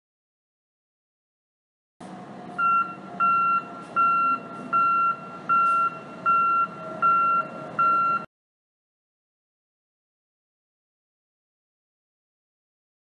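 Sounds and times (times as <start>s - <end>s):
truck engine running: 2.0s - 8.2s
truck back-up alarm beeping: 2.6s - 8.3s.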